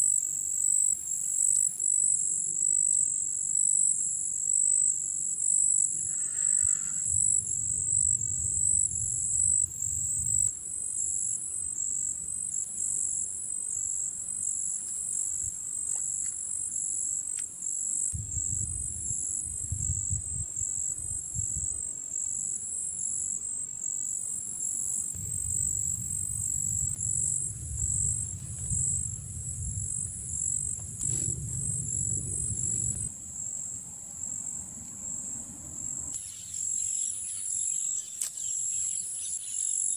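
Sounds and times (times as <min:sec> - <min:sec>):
insects chirping: 0:00.0 - 0:39.9
low rumble: 0:07.0 - 0:10.6, 0:18.2 - 0:21.7, 0:25.1 - 0:33.2.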